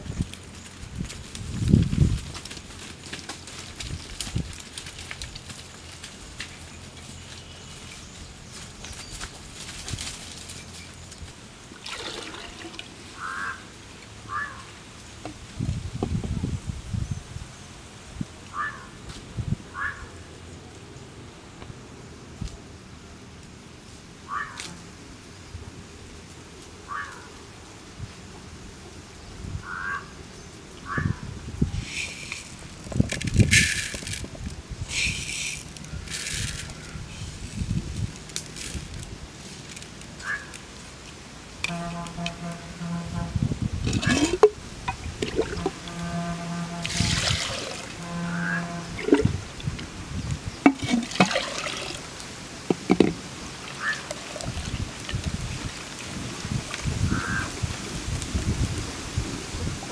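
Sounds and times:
water splashing in clay pot: 0:11.8 - 0:13.1, 0:43.8 - 0:46.0, 0:46.8 - 0:49.8, 0:50.6 - 0:57.4
bird calling: 0:13.1 - 0:13.7, 0:14.3 - 0:14.7, 0:18.5 - 0:19.0, 0:19.7 - 0:20.2, 0:24.3 - 0:24.8, 0:26.9 - 0:27.3, 0:29.6 - 0:30.2, 0:30.8 - 0:32.6, 0:40.2 - 0:40.7, 0:44.0 - 0:49.6, 0:52.7 - 0:54.4, 0:57.0 - 0:57.5
lentils poured into clay pot: 0:31.8 - 0:36.8, 0:43.8 - 0:44.6, 0:46.8 - 0:47.9, 0:49.0 - 0:49.4
low humming tone: 0:41.6 - 0:49.7.

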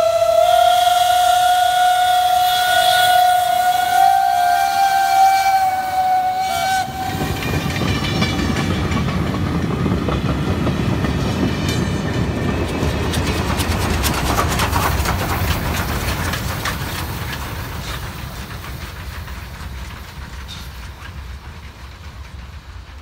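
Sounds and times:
steam locomotive whistle: 0:00.0 - 0:08.3
passenger coaches rumbling past: 0:00.0 - 0:23.0
wheels clicking on rails: 0:06.0 - 0:23.0.

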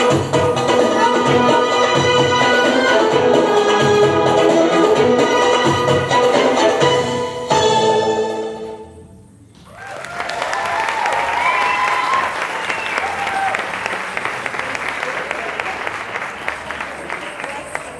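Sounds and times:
dance music: 0:00.0 - 0:09.0
audience cheering: 0:09.6 - 0:16.2
audience applause: 0:09.7 - 0:17.9.

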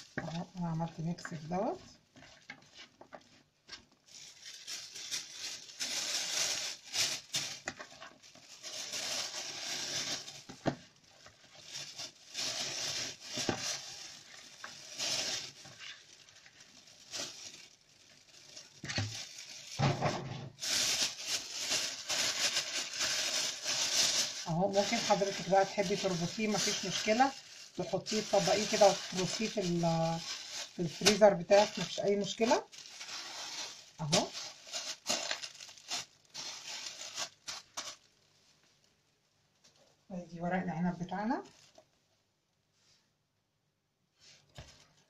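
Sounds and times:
plastic bag crinkling: 0:00.0 - 0:39.8, 0:40.9 - 0:42.0.

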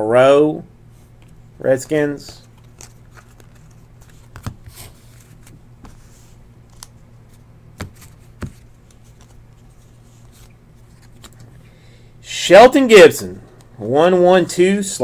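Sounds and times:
low steady hum: 0:00.0 - 0:15.0
trading cards clicking and snapping: 0:02.5 - 0:04.8, 0:10.2 - 0:11.5.

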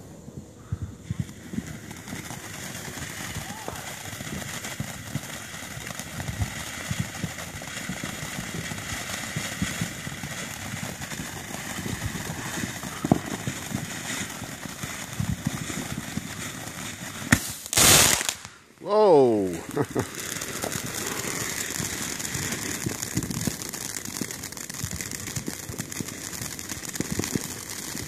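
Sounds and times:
fireworks fountain hissing: 0:01.0 - 0:28.0
crackling pops: 0:17.2 - 0:28.0.

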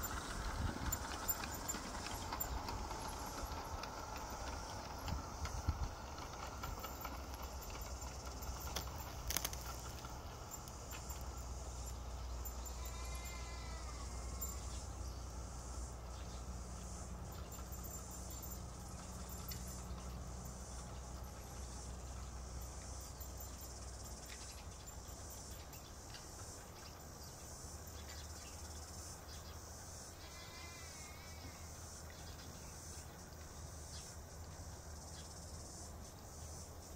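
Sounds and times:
insects chirring: 0:00.0 - 0:36.9.

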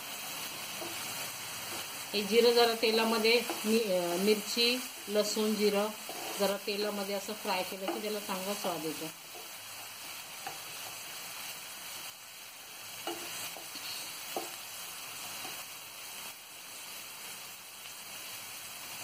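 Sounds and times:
food sizzling in oil: 0:00.0 - 0:19.0
wooden spatula scraping pan: 0:03.0 - 0:07.0.

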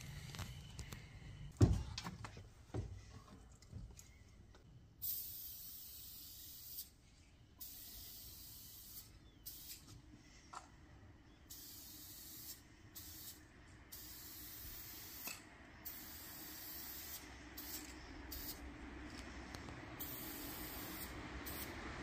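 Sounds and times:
spray paint can hissing: 0:05.0 - 0:07.0, 0:07.6 - 0:09.9, 0:11.5 - 0:18.6, 0:20.0 - 0:21.8.

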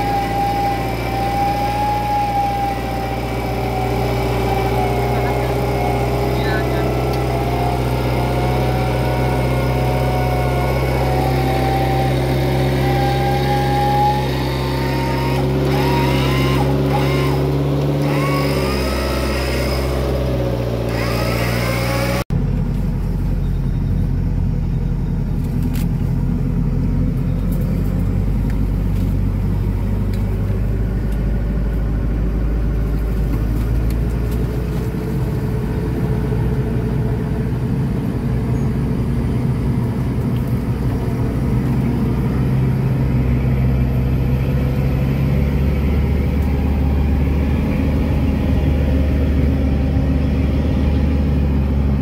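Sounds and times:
off-road vehicle engines running: 0:00.0 - 0:52.0.

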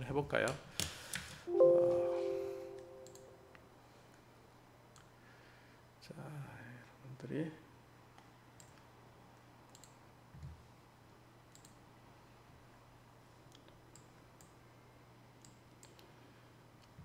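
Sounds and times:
computer mouse clicks: 0:08.2 - 0:08.9, 0:09.7 - 0:10.0, 0:11.5 - 0:11.8, 0:13.5 - 0:14.6, 0:15.4 - 0:16.2.

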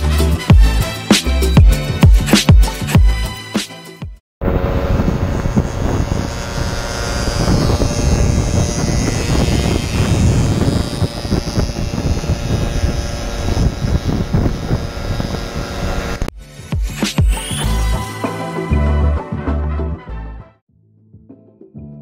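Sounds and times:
two-stroke moped engine running: 0:04.4 - 0:16.3
wind buffeting microphone: 0:04.4 - 0:16.3.

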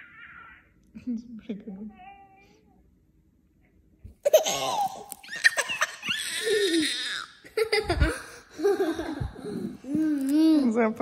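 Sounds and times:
baby giggling: 0:04.2 - 0:10.5.

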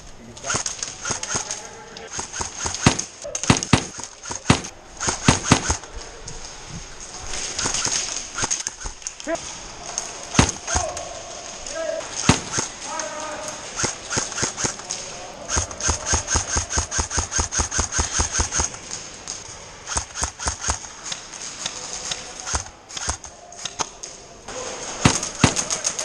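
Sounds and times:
airsoft rifles firing bursts: 0:00.4 - 0:05.9, 0:07.4 - 0:09.1, 0:10.3 - 0:10.9, 0:12.0 - 0:18.9, 0:19.9 - 0:21.2, 0:22.4 - 0:23.8, 0:24.9 - 0:26.0
loud thumps: 0:02.1 - 0:05.9, 0:10.4 - 0:10.9, 0:12.1 - 0:12.8.

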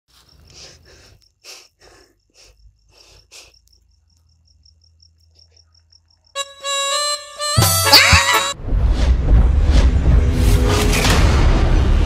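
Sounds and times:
cricket chirping: 0:00.1 - 0:07.9.

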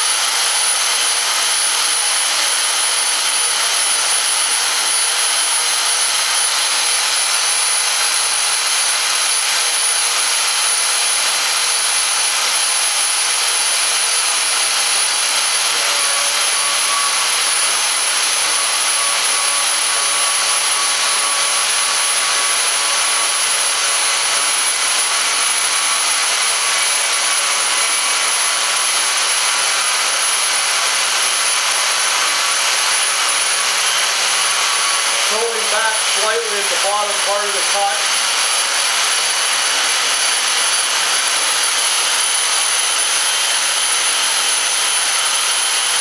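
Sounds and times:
band saw cutting steel: 0:00.0 - 0:46.0
thin high whine: 0:34.7 - 0:38.2.

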